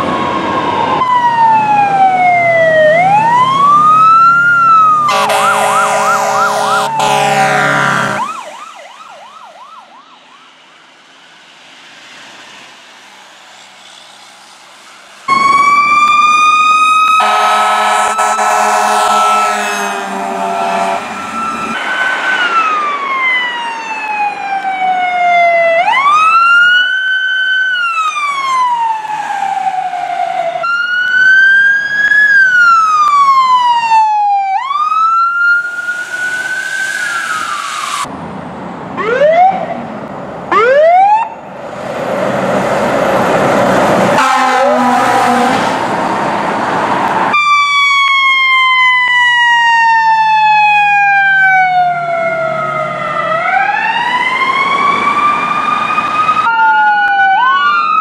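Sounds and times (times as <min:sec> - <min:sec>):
siren chirps: 0:00.0 - 0:10.7, 0:15.3 - 0:38.1, 0:39.0 - 0:39.9, 0:40.5 - 0:41.5, 0:44.2 - 0:45.7, 0:47.3 - 0:58.0
fire truck sirens wailing: 0:00.0 - 0:58.0
horn blasts: 0:05.1 - 0:08.4, 0:17.2 - 0:21.3, 0:44.2 - 0:45.6.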